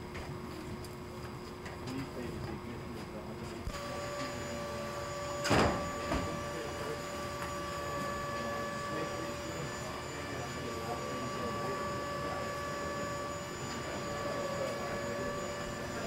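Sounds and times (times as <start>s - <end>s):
constant high whine: 0.0s - 16.0s.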